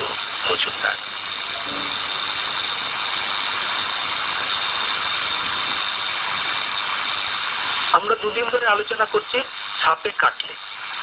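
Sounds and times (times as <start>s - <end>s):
radio static hiss: 0.0s - 2.5s, 7.7s - 11.0s
faint high whining tones: 0.0s - 11.0s.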